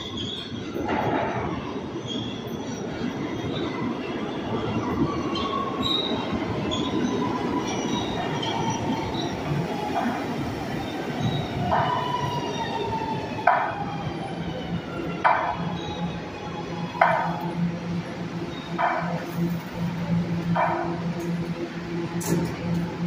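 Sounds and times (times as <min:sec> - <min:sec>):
train wheels rumbling on rail: 0:00.0 - 0:23.0
high brake squealing: 0:05.4 - 0:09.4.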